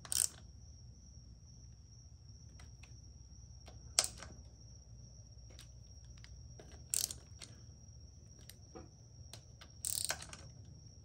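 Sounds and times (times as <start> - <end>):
metallic clicks of hand tools: 9.8 - 10.4.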